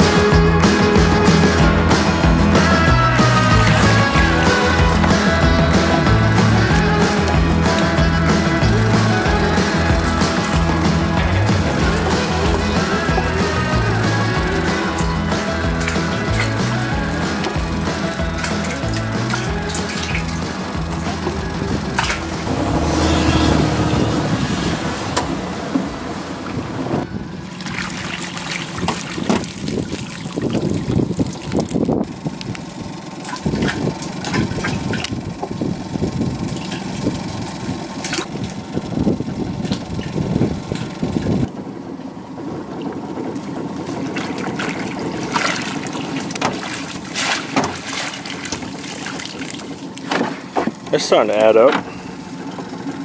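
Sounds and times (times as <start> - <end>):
water splashing: 0.0 - 32.6, 33.2 - 53.0
boat motor running: 0.0 - 53.0
knocks and rattles in plastic barrel: 0.6 - 22.5, 27.6 - 31.9, 43.8 - 52.0
wind on microphone: 21.5 - 27.5, 28.7 - 32.6, 33.4 - 41.5.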